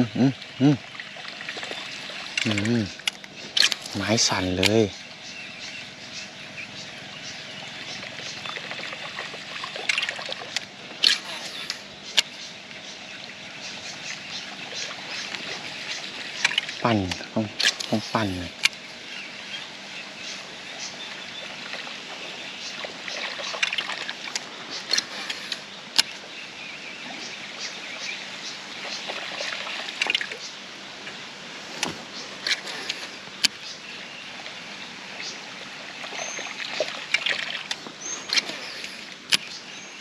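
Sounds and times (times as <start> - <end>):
water trickling and sloshing: 0.2 - 40.0.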